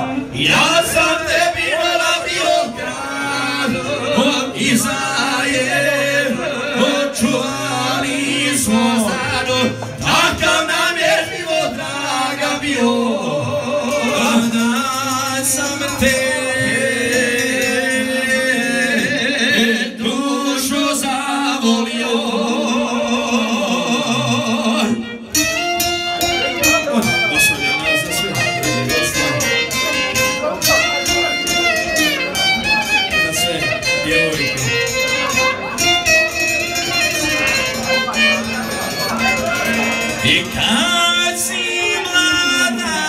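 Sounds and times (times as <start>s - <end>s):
two men singing through pa: 0.1s - 25.3s, 40.2s - 43.0s.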